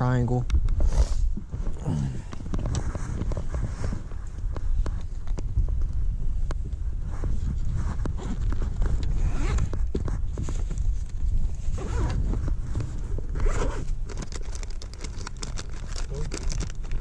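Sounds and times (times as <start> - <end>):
steady low rumble: 0.0 - 17.0
clothing rustling against camera: 0.8 - 5.8, 6.6 - 17.0.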